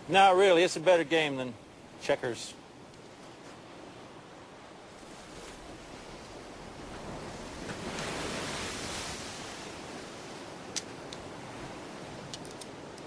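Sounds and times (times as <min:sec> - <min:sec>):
surf washing onto beach: 0:03.5 - 0:13.0
wave breaking: 0:05.0 - 0:12.4
light clicks: 0:12.3 - 0:13.0.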